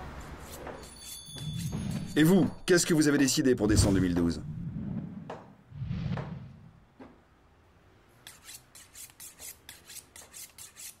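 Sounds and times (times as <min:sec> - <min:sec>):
low whoosh: 0:03.7 - 0:06.9.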